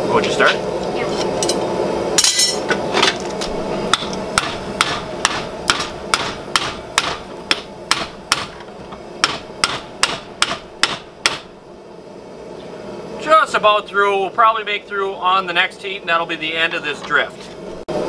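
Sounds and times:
hammer striking metal punch: 0:03.9 - 0:08.6, 0:09.2 - 0:11.5.

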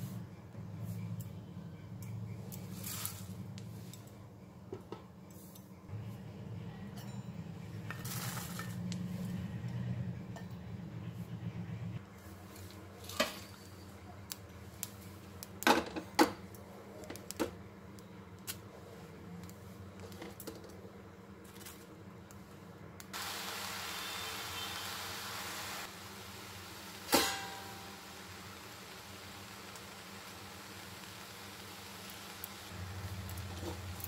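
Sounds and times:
steady hiss: 0:23.1 - 0:34.0.

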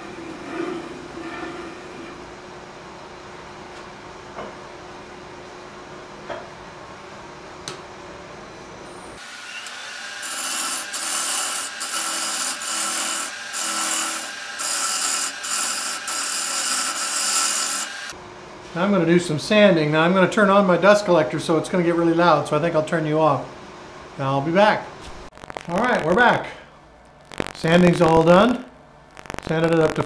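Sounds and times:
bowl scraper cutting wood on lathe: 0:09.2 - 0:18.1
low shop noise: 0:21.4 - 0:30.0.

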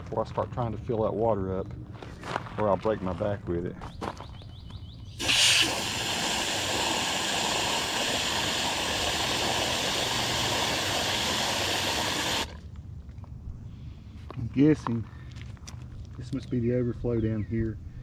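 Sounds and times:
hose nozzle spraying water: 0:05.2 - 0:12.6.

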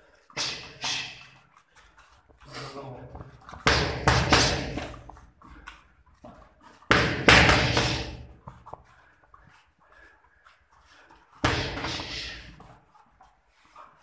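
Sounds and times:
boxing gloves hitting focus mitts: 0:03.0 - 0:08.9, 0:11.4 - 0:12.8.

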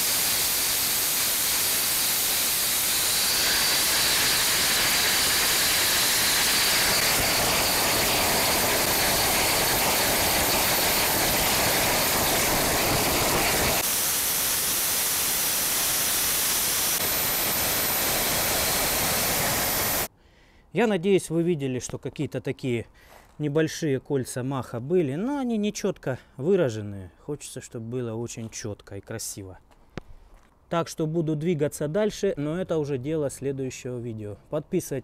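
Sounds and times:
jet engine rushing hiss: 0:00.0 - 0:20.1.

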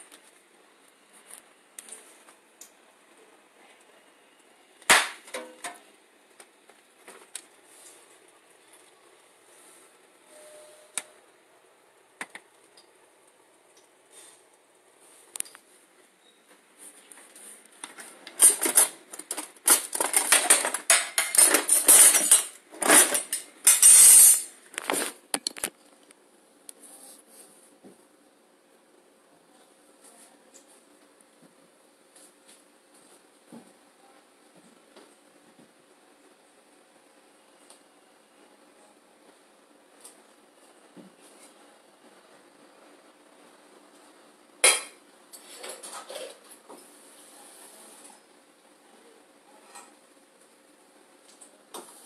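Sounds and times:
dishes and utensils clattering: 0:18.3 - 0:24.5, 0:44.6 - 0:46.5.

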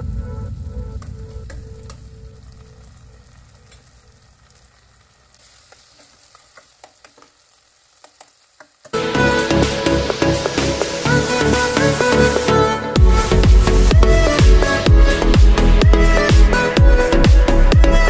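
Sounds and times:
background music: 0:00.0 - 0:04.0, 0:09.0 - 0:18.0
vegetables sizzling in a pot: 0:01.8 - 0:12.6.

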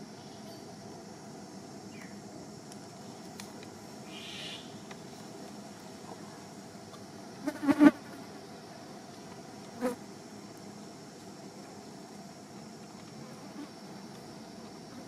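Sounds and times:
faint outdoor background: 0:00.0 - 0:15.0
flying insect buzzing: 0:07.3 - 0:08.6, 0:11.8 - 0:15.0.

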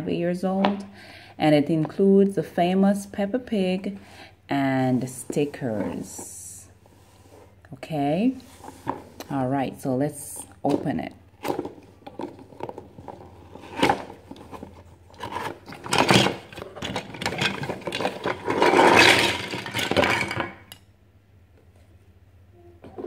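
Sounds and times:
plastic blocks clattering on table: 0:11.5 - 0:20.8.

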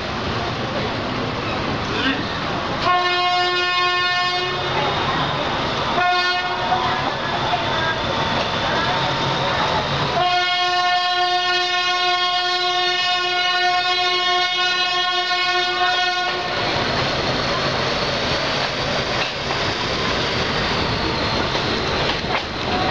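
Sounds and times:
train running on track: 0:00.0 - 0:22.9
locomotive horn blast: 0:02.8 - 0:04.7, 0:06.0 - 0:06.7, 0:10.2 - 0:16.6
train wheel clacks: 0:16.2 - 0:22.9.

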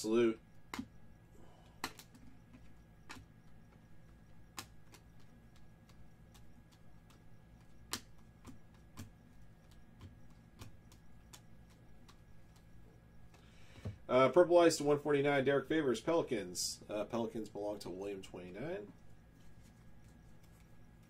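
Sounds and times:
steady low hum: 0:00.0 - 0:21.0
trading cards flipping and clicking: 0:01.8 - 0:14.0, 0:18.4 - 0:21.0.

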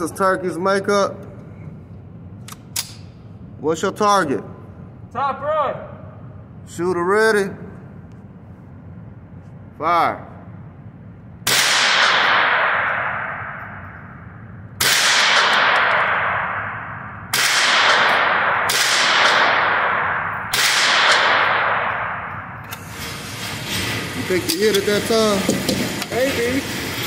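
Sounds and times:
rifle shots with echo: 0:11.4 - 0:14.2, 0:14.8 - 0:22.6.

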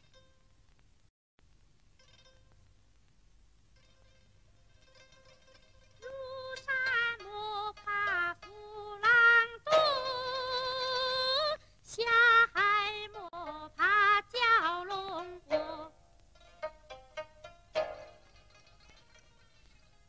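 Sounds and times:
woman singing folk song: 0:06.0 - 0:16.0.

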